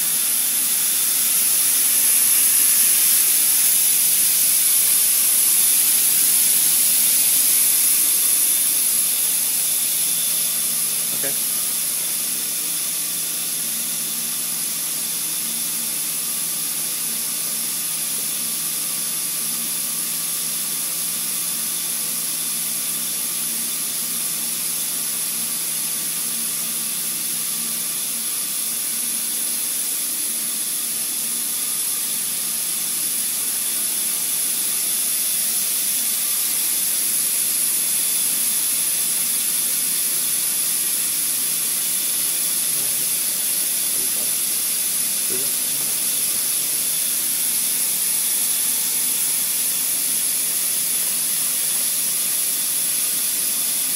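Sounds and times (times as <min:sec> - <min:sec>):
compressed air hissing: 0:00.0 - 0:11.5.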